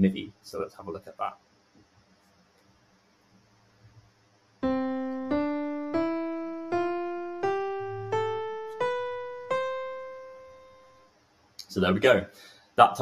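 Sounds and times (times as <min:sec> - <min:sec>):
piano playing ascending scale: 0:04.6 - 0:11.1.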